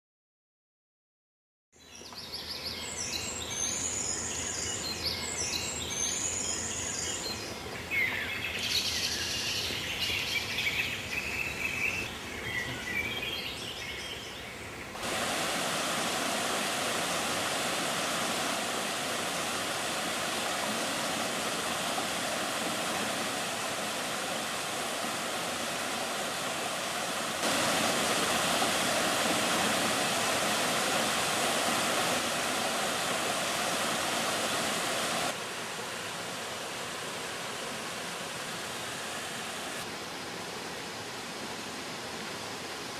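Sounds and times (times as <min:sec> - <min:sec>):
songbirds chirping and singing: 0:01.8 - 0:15.0
waterfall rushing: 0:15.0 - 0:40.0.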